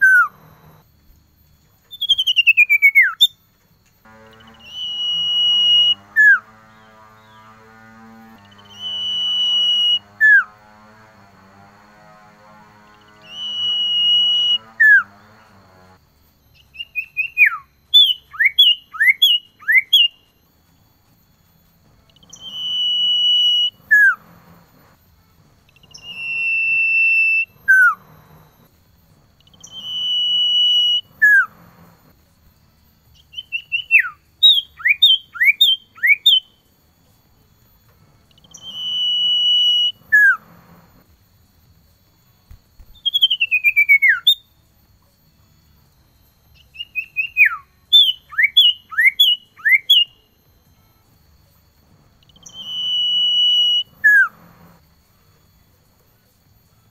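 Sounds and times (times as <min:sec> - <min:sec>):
bird whistling song: 0:00.0 - 0:00.8, 0:01.8 - 0:03.5, 0:04.2 - 0:07.4, 0:08.4 - 0:10.6, 0:12.9 - 0:15.3, 0:16.5 - 0:20.4, 0:22.1 - 0:24.9, 0:25.6 - 0:28.7, 0:29.4 - 0:31.9, 0:33.1 - 0:36.7, 0:38.3 - 0:40.8, 0:42.5 - 0:44.6, 0:46.2 - 0:51.0, 0:52.2 - 0:54.8
run of falling whistles: 0:00.0 - 0:07.5, 0:08.4 - 0:11.0, 0:12.9 - 0:36.8, 0:37.6 - 0:44.7, 0:45.6 - 0:56.9.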